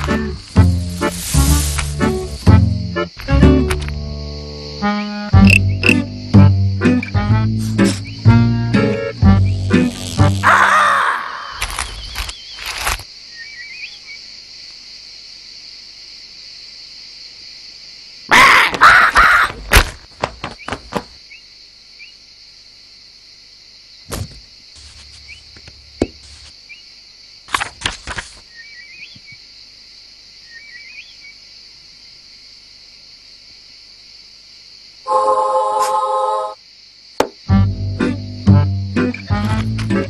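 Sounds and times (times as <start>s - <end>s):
high hiss of ambience: 0.0s - 3.2s, 6.0s - 13.7s
small bird chirps: 6.9s - 8.4s, 11.4s - 14.2s, 25.2s - 25.6s, 28.5s - 29.4s, 30.4s - 31.4s.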